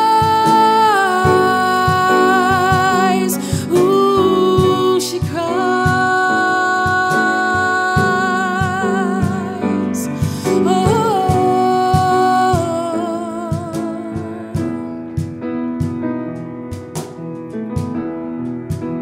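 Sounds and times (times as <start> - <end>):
woman singing wordless notes: 0.0 - 15.0
piano chords: 0.0 - 19.0.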